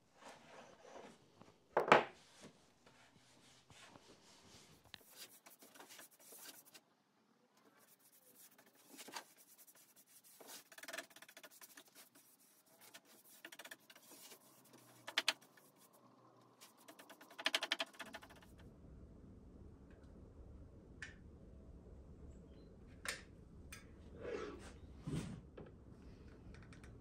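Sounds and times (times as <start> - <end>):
rag wiping wooden board: 7.8 - 15.9
clattering ticks: 16.8 - 18.5.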